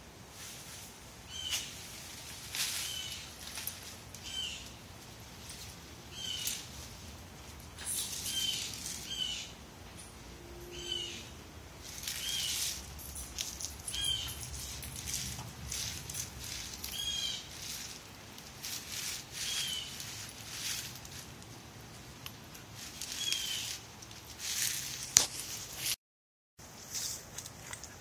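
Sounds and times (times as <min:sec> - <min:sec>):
dog sniffing and rustling plants: 0:00.3 - 0:10.8, 0:11.7 - 0:26.0
small bird chirping: 0:06.1 - 0:06.6, 0:13.8 - 0:14.8, 0:16.8 - 0:17.8, 0:23.0 - 0:23.8.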